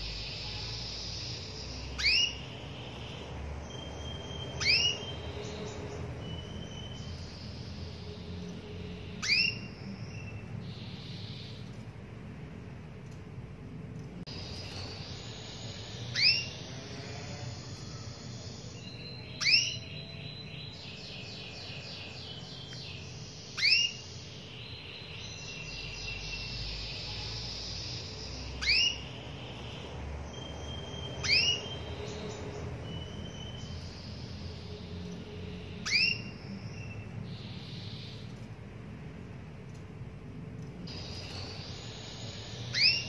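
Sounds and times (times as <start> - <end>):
canary rising call notes: 0.0 - 7.9, 9.0 - 11.6, 14.4 - 20.0, 28.6 - 34.0, 35.7 - 36.6, 40.9 - 43.0
bird twittering and whistles: 0.0 - 11.9, 14.3 - 38.5, 40.8 - 43.0.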